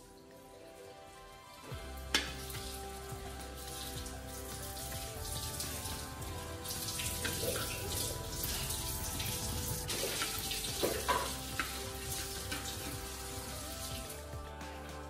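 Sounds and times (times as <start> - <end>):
butter sizzling in a wok: 1.7 - 14.4.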